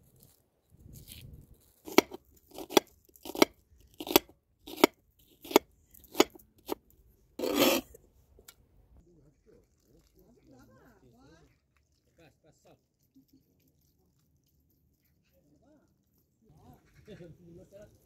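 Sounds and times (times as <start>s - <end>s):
rasping noise: 7.4s - 8.0s.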